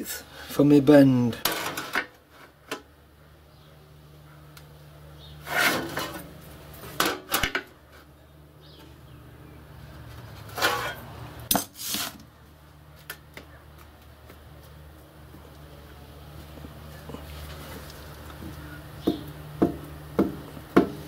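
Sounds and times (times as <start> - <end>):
low steady hum: 0.0 - 21.0
steel tool clanking and scraping: 5.4 - 6.3, 10.4 - 12.2.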